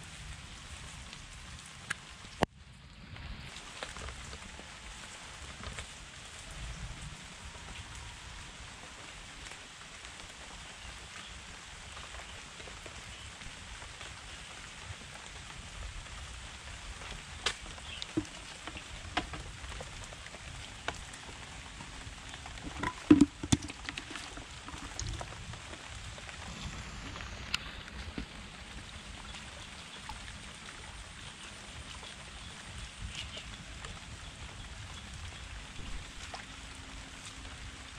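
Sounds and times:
rain on concrete and plants: 0.0 - 37.9
plastic bucket knocks: 18.1 - 19.4, 22.6 - 25.2.

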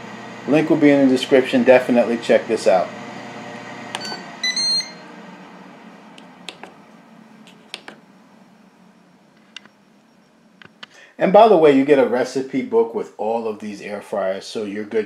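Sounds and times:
air fryer fan whooshing: 0.0 - 8.6
short electronic beep: 4.0 - 5.1
air fryer click: 6.2 - 6.8, 7.6 - 8.0.

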